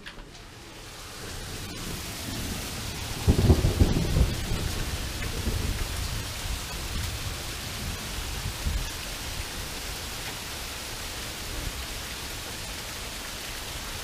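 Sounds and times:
heavy rain pouring: 0.0 - 14.0
thunder rumbling: 0.5 - 10.0.

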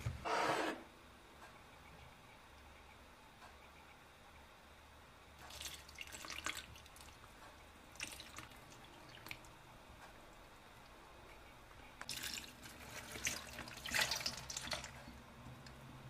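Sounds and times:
milk dribbling and dripping: 5.4 - 10.1, 12.0 - 15.8
milk splashing onto cabbage: 5.5 - 7.2, 12.0 - 15.1.

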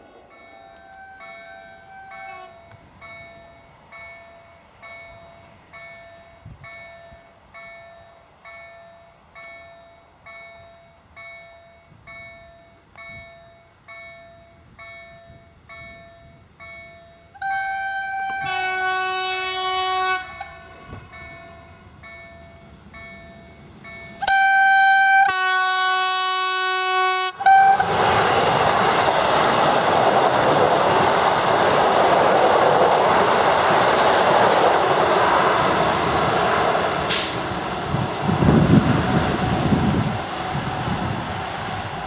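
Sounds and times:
train wheel and rail rush: 0.0 - 42.0
train horn blasts: 0.6 - 2.7, 17.4 - 21.8, 24.2 - 28.0.

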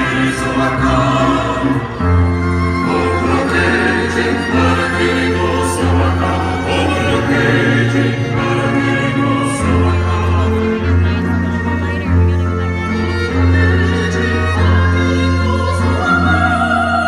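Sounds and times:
choir singing held notes: 0.0 - 10.8.

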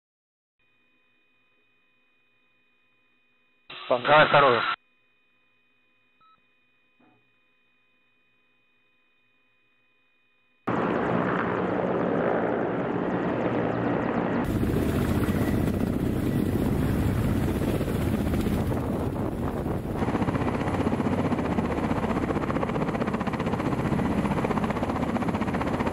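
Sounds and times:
helicopter rotor chop: 10.7 - 25.9.

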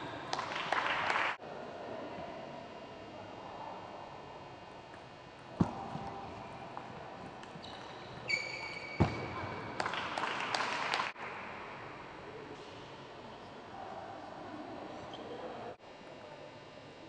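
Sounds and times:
brief high squeak: 7.6 - 9.0.

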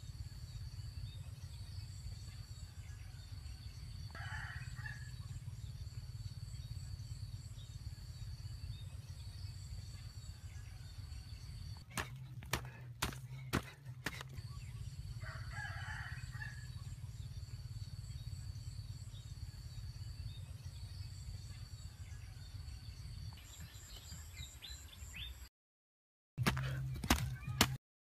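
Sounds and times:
rooster crowing: 4.1 - 5.2, 15.2 - 16.8
digging tool striking earth: 11.9 - 14.4, 26.4 - 27.8.

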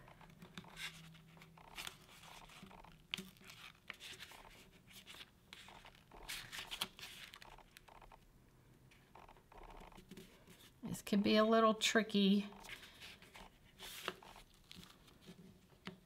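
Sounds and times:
paper rustling and crinkling: 0.4 - 7.5, 12.6 - 15.7.

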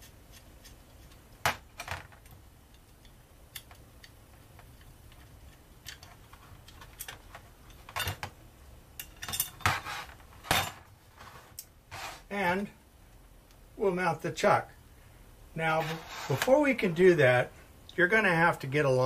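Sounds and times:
screwdriver clicking on metal parts: 2.2 - 8.2.

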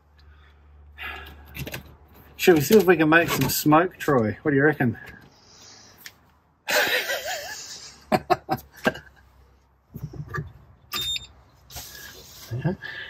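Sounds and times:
man laughing: 6.7 - 9.3, 12.5 - 13.0.

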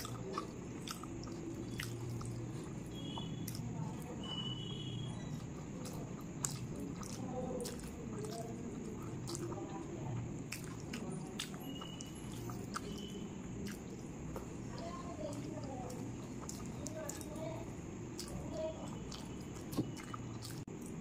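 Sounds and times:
mouth smacks and clicks: 0.0 - 4.4, 10.5 - 14.5, 18.2 - 21.0
wet chewing: 0.0 - 21.0.

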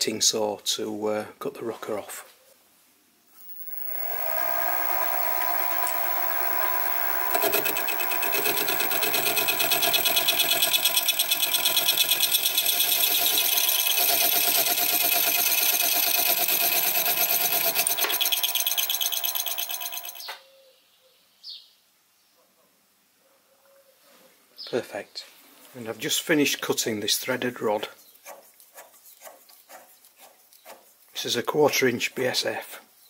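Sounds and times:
mill motor running: 3.3 - 20.3
slitting saw chattering on metal: 6.9 - 20.3.

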